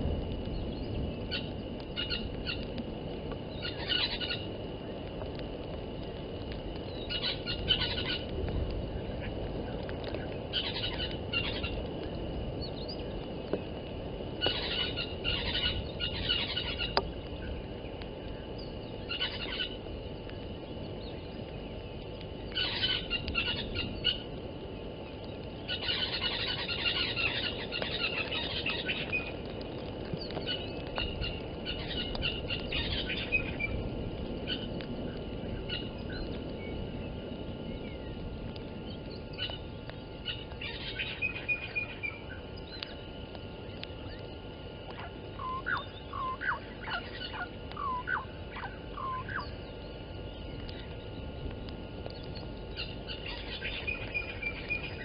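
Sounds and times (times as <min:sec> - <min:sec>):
wind rushing on microphone: 0:00.0 - 0:46.3
wild birds calling and chirping: 0:00.5 - 0:02.8, 0:03.4 - 0:04.6, 0:06.8 - 0:08.3, 0:08.9 - 0:13.2, 0:14.4 - 0:55.0.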